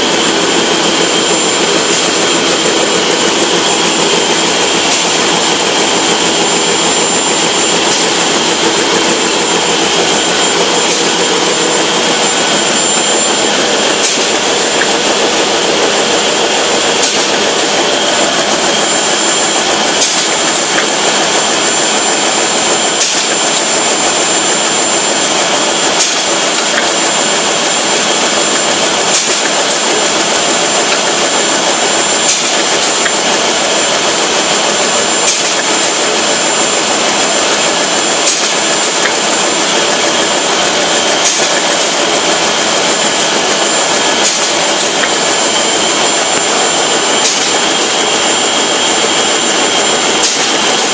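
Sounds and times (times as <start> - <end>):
high machine whine: 0.0 - 50.9
production line machine din: 0.0 - 50.9.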